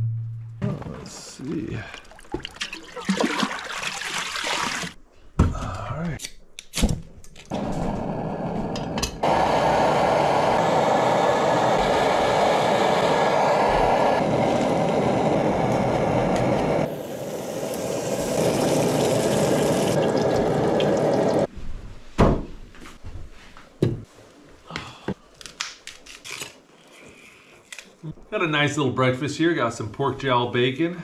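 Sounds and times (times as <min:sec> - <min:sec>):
stove burning hiss: 0:07.5 - 0:21.5.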